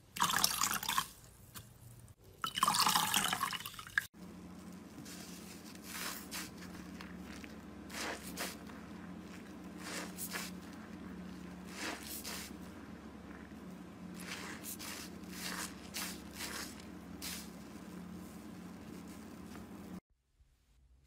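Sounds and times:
sponge squelching in soapy water: 4.1 - 20.0
faint low hum: 4.2 - 21.0.

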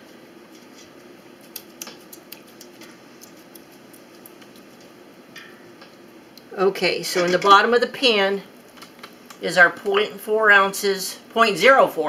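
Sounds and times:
steady low hiss: 0.0 - 12.0
wet clicks and squelches: 1.4 - 4.7.

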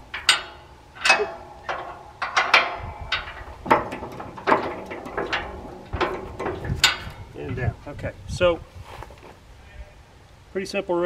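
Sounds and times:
steel-on-steel clanks: 0.0 - 8.0.

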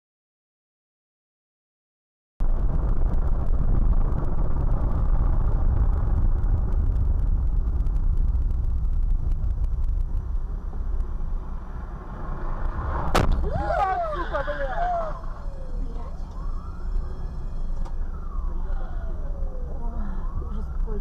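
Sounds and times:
vehicle engine and road noise: 2.4 - 21.0.

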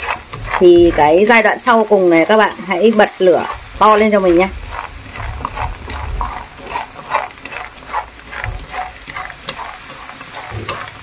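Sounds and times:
light sizzle: 0.0 - 11.0
nuts scraping and rattling in a pan: 0.0 - 11.0.

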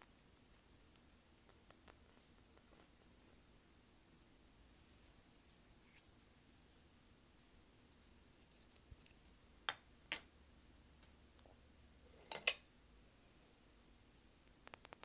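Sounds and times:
sharp clicks: 14.6 - 15.0.

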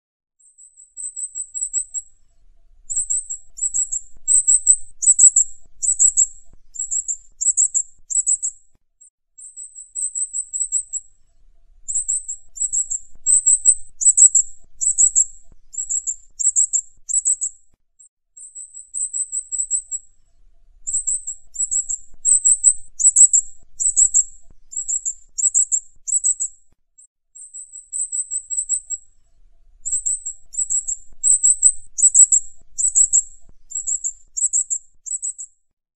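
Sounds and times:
parrot chirping: 2.9 - 8.6, 11.9 - 17.5, 20.9 - 26.5, 29.8 - 35.4.

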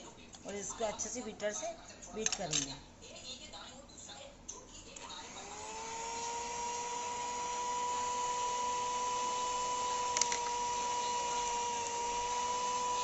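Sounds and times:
electric beater whining: 5.1 - 13.0.

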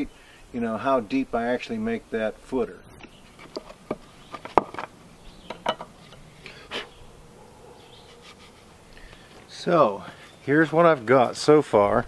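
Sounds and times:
knife scraping wood: 3.2 - 4.9, 8.0 - 8.7.

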